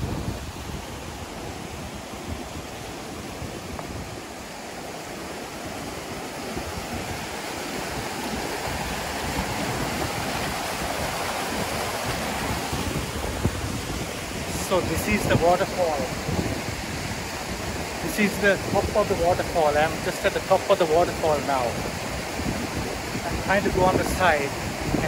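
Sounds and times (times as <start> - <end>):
waterfall rushing water: 0.0 - 25.0.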